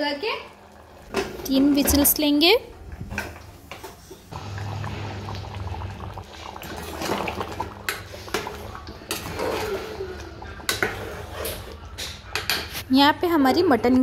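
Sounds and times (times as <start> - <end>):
thick gravy sloshing: 4.3 - 11.9.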